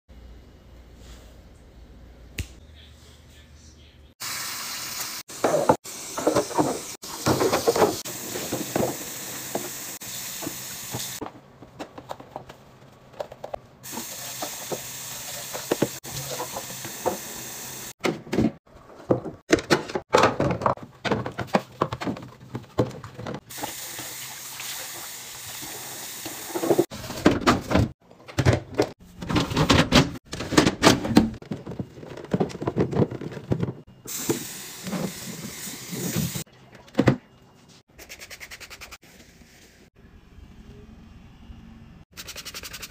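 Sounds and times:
running tap water: 4.2 - 11.2, 23.4 - 26.9
plastic bins knocking together: 18.0 - 23.4, 27.1 - 33.9.

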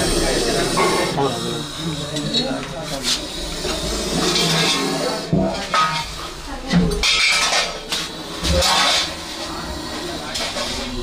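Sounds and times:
snake hissing: 0.0 - 5.3.

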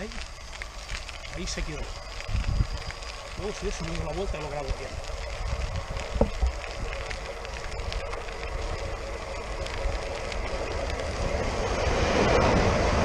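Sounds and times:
electric train approaching: 0.0 - 13.0
wind buffeting microphone: 0.0 - 13.0.

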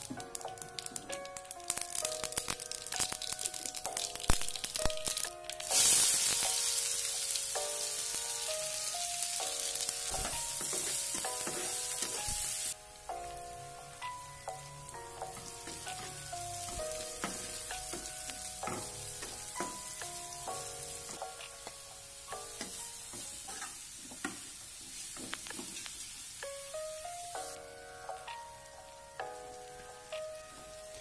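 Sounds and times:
background music: 0.0 - 23.8, 26.4 - 31.0
onions sizzling in hot oil: 0.0 - 31.0
metal spatula stirring: 10.6 - 12.2.

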